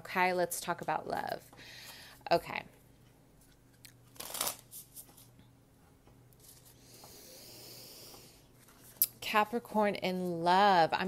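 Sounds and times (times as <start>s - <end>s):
cards being shuffled: 4.0s - 5.3s.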